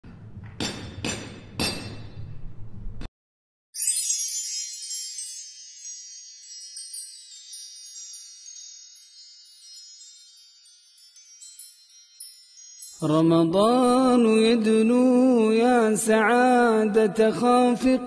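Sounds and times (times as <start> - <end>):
wind chimes tinkling: 3.8 - 15.4.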